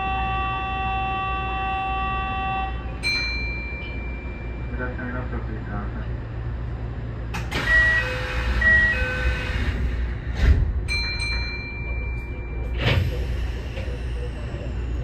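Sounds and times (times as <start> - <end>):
electric train low hum: 0.0 - 15.0.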